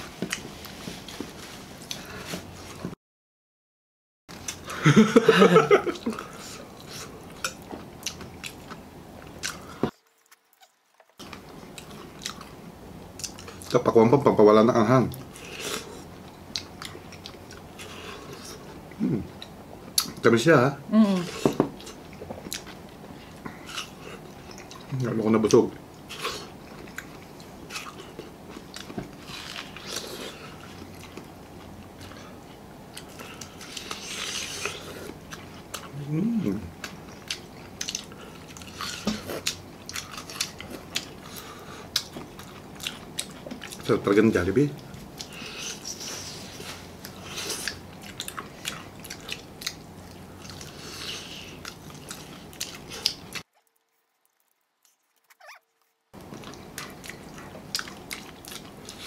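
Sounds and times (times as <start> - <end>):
people biting and chewing food: 5.9 - 13.8, 21.2 - 59.0.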